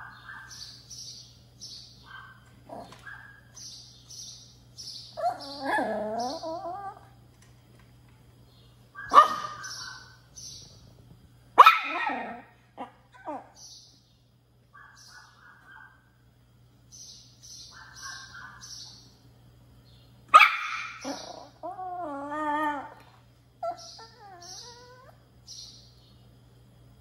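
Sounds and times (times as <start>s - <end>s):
puppy yelping barks: 0.0s - 0.7s, 2.1s - 3.6s, 5.2s - 7.0s, 9.0s - 10.2s, 11.6s - 13.6s, 17.7s - 18.7s, 20.3s - 23.0s
puppy whining: 5.2s - 7.2s, 21.0s - 25.3s.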